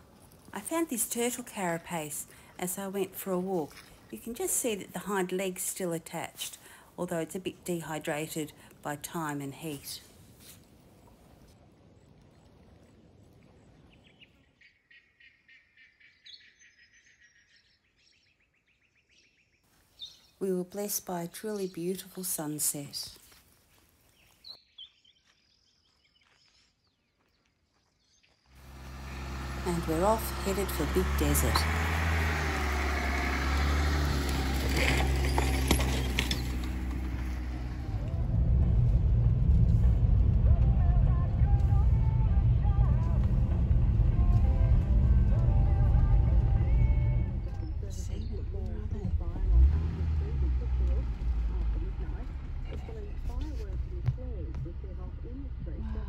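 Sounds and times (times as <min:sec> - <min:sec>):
faint outdoor hiss: 0:00.0 - 0:14.6
small birds chirping: 0:13.8 - 0:20.4, 0:24.1 - 0:32.8, 0:47.4 - 0:49.5
tyres crunching over gravel: 0:27.2 - 0:38.1, 0:43.8 - 0:55.8
vehicle engine humming: 0:28.6 - 0:56.0.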